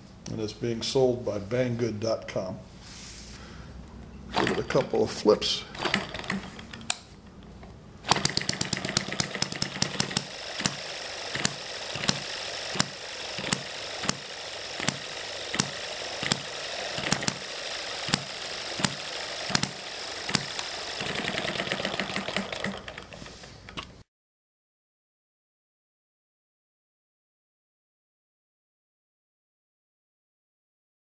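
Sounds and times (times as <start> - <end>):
model engine popping: 4.3 - 5.0, 5.8 - 7.0, 8.0 - 23.9
light mechanical clatter: 5.7 - 24.0.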